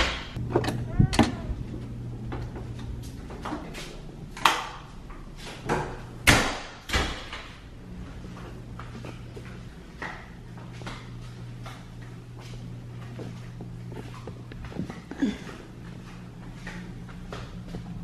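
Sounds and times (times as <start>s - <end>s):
doors opening and shutting: 0.0s - 8.4s
low steady hum: 0.0s - 18.0s.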